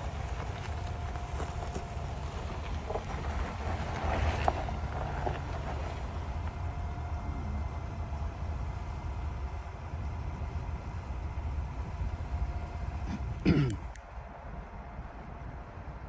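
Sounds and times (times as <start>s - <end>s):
engine rumbling at low revs: 0.0s - 16.0s
tires rolling over loose dirt: 0.0s - 16.0s.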